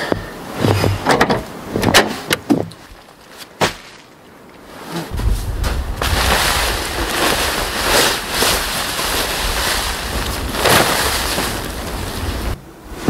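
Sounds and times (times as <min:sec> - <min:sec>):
tarp rustling and flapping: 0:04.7 - 0:13.0.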